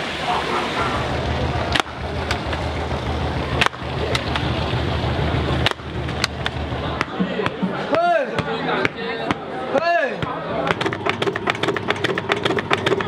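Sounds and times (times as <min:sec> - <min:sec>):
steady low hum: 0:00.4 - 0:07.2.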